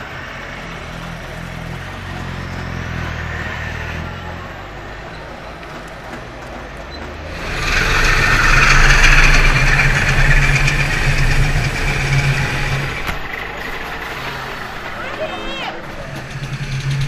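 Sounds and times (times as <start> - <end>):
two-stroke car engine passing: 0.0 - 17.0.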